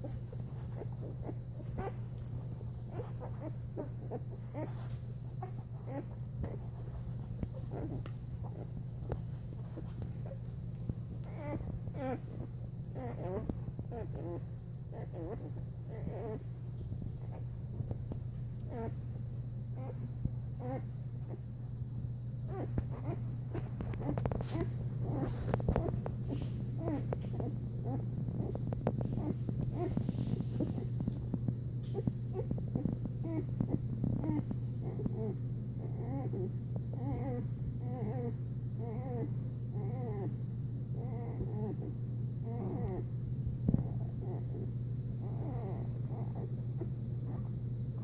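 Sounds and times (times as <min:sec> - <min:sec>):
puppies squeaking and grunting: 0:00.0 - 0:10.5, 0:11.2 - 0:16.5, 0:18.6 - 0:19.0, 0:19.8 - 0:21.4, 0:22.5 - 0:40.4, 0:42.5 - 0:43.0, 0:45.2 - 0:46.6
steady low hum: 0:00.0 - 0:48.0.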